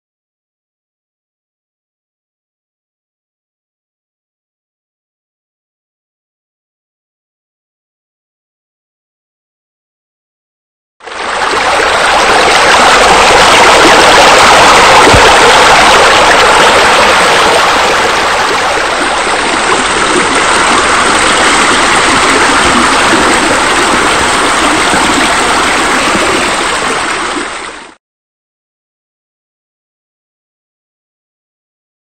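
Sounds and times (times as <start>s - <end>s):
falling water rushing: 11.1s - 28.0s.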